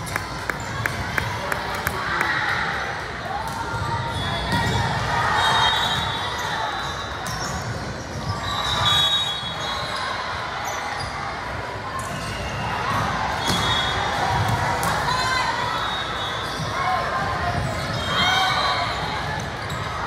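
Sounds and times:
sneaker squeaks on court floor: 4.1s - 11.3s, 12.0s - 14.5s, 15.8s - 16.8s, 17.5s - 20.0s.

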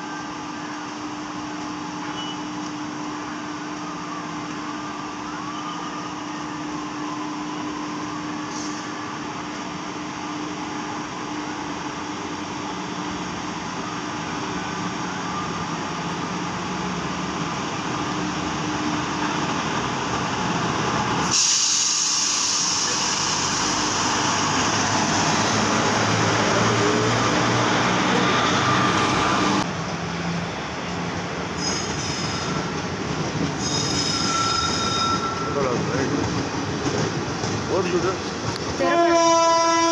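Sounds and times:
train rumbling past: 6.6s - 39.9s
loud rushing hiss: 21.2s - 25.6s
high wheel squeals: 31.6s - 32.8s, 33.6s - 36.0s.

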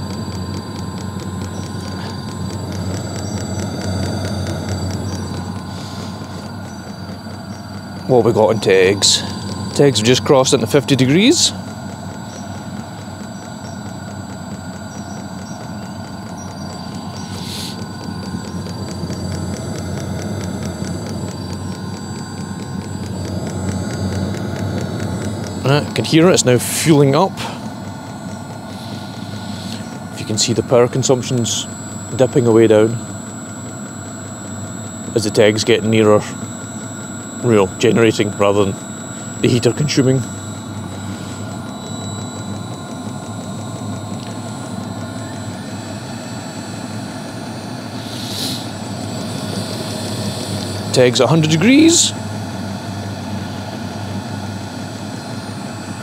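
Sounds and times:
fuel pump ticking: 0.0s - 54.3s
heater burner low rumble: 0.0s - 56.0s
thin high whine: 0.0s - 56.0s
short hiss: 48.0s - 48.7s.

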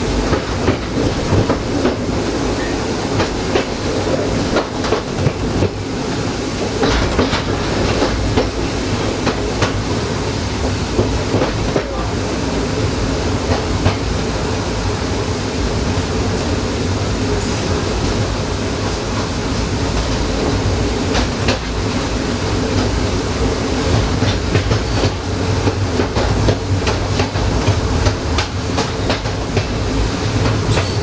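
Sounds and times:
train rumbling and rattling: 0.0s - 31.0s.

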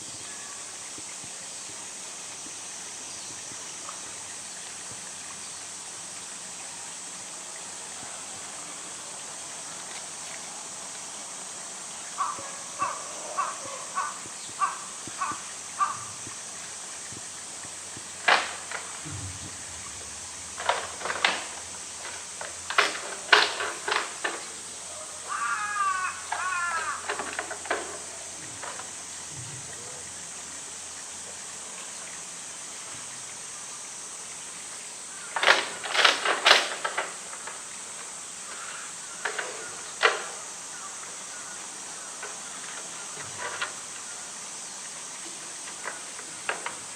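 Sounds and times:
crow cawing: 12.2s - 16.2s, 24.9s - 27.7s, 38.4s - 43.2s.

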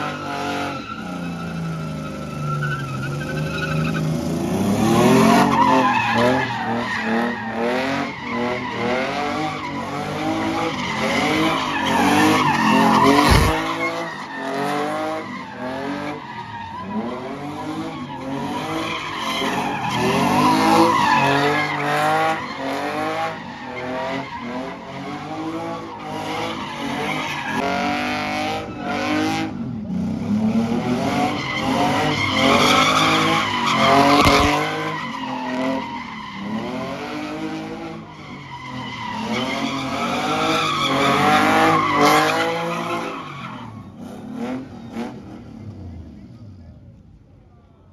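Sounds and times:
tyres squealing on asphalt: 0.0s - 29.9s, 30.7s - 45.8s
car engine revving: 8.9s - 14.0s.

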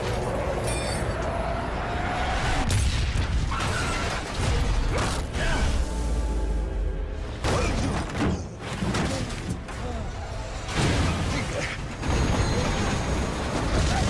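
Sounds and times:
film score music: 0.0s - 13.9s
metal crashes and screeches: 7.3s - 14.0s
train rumbling: 9.6s - 14.0s.

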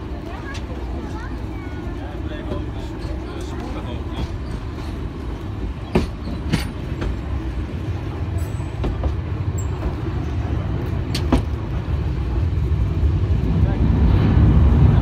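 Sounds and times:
train rumbling: 0.0s - 15.0s
train wheels clacking: 2.4s - 11.7s.

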